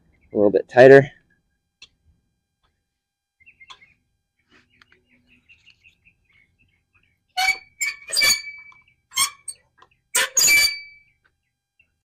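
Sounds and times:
reel mower blades squeaking: 0:07.4 - 0:11.0.

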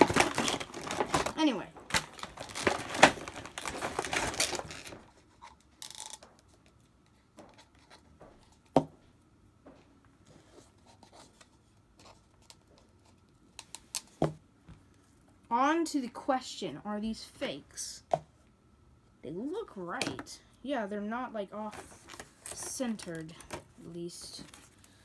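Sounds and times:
plastic packaging crinkling: 0:00.0 - 0:05.2.

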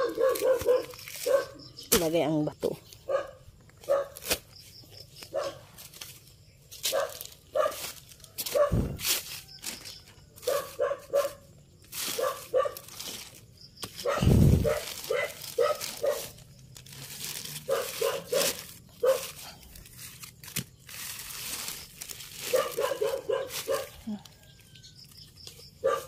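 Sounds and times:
dog barking: 0:00.0 - 0:01.6, 0:03.1 - 0:04.2, 0:05.3 - 0:05.6, 0:06.9 - 0:07.8, 0:08.5 - 0:08.9, 0:10.4 - 0:11.5, 0:12.2 - 0:12.9, 0:14.0 - 0:16.4, 0:17.7 - 0:19.4, 0:22.5 - 0:24.0, 0:25.8 - 0:26.0
plastic sheeting crinkling: 0:06.8 - 0:24.7.

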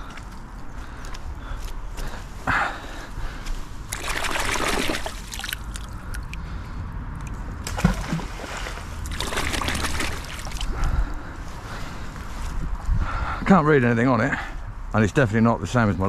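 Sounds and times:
water splashing and sloshing: 0:03.7 - 0:06.6, 0:07.2 - 0:11.1.

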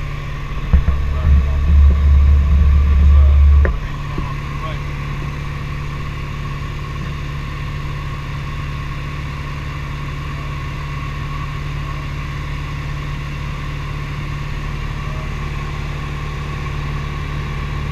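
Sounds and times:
air noise: 0:00.0 - 0:09.0
high whine: 0:00.0 - 0:11.3
light aircraft engine droning: 0:00.0 - 0:17.9.

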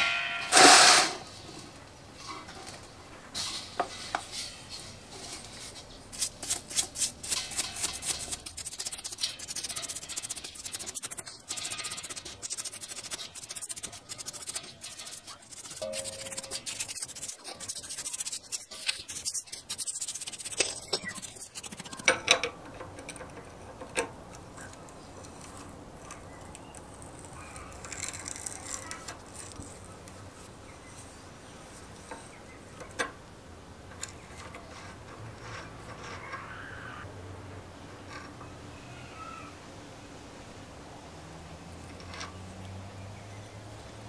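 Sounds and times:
brush scrubbing metal: 0:03.4 - 0:24.1.

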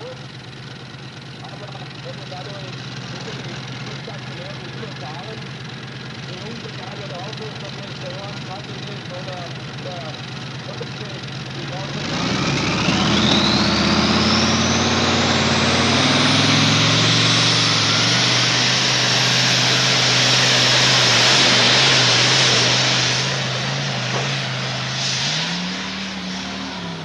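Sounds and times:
tractor engine running under load: 0:00.0 - 0:27.0
high whine rising in pitch: 0:11.6 - 0:27.0.

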